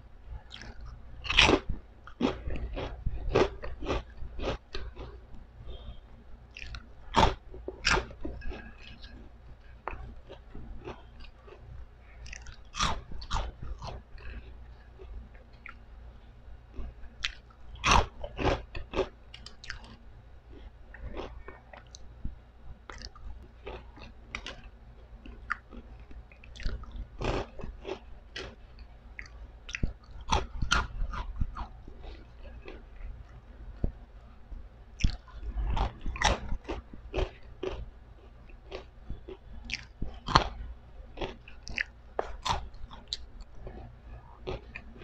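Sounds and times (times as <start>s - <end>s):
steady low hum: 0.0s - 45.0s
crunching and chewing pork rinds: 0.3s - 5.9s, 6.5s - 15.9s, 16.7s - 22.1s, 22.7s - 45.0s.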